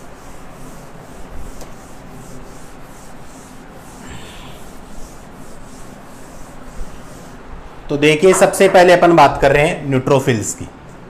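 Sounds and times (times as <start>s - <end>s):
duster rubbing on whiteboard: 0.0s - 7.5s.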